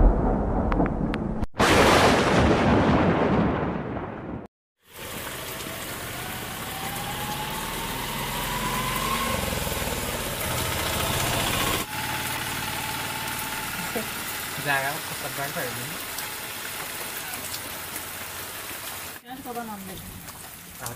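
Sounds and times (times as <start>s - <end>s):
thunder rumble: 0.0s - 5.2s
small auto-rickshaw engine: 4.8s - 15.6s
steady rain: 4.8s - 20.9s.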